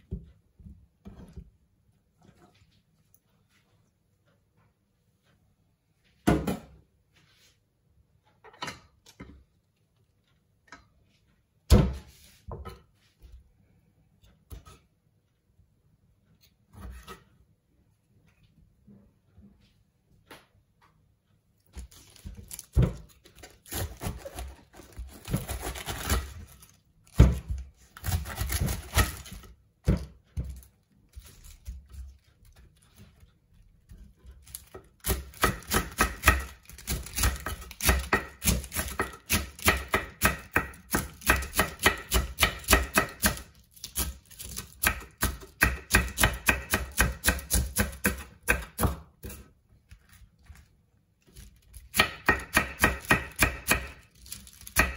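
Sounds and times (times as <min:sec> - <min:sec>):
knife chopping lettuce on board: 0:21.8 - 0:32.8, 0:33.9 - 0:49.5, 0:51.9 - 0:54.9.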